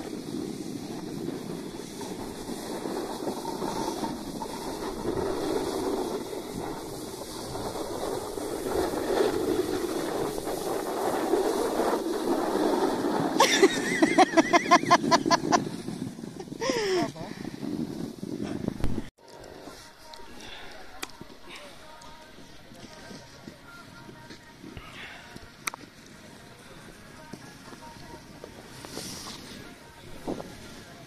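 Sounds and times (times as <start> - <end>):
wind on microphone: 0.0 - 19.1
snowboard scraping on snow: 0.0 - 31.0.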